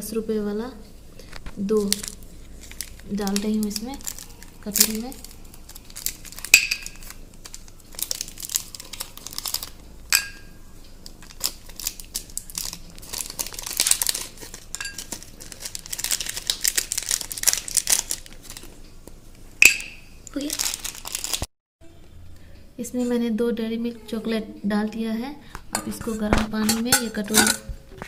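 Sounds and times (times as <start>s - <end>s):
wrappers crinkling and tearing: 1.2s - 9.8s, 10.9s - 18.8s, 20.3s - 21.5s.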